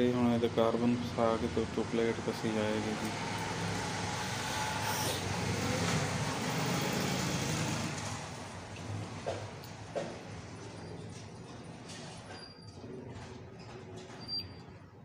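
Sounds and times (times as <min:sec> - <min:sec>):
motor vehicle passing: 0:01.0 - 0:12.2.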